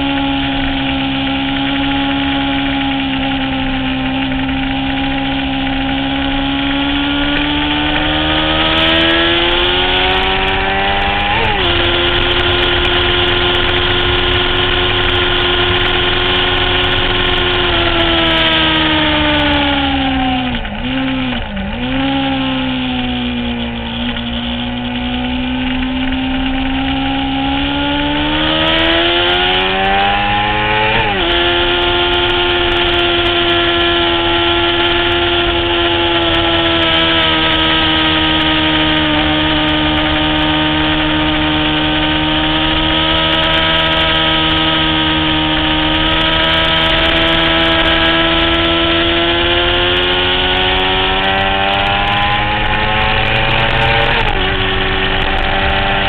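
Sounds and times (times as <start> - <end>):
motorcycle engine revving: 0.0 - 56.0.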